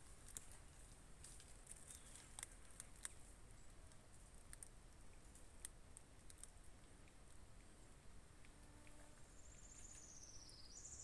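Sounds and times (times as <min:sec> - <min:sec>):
faint high hiss: 0:03.3 - 0:11.0.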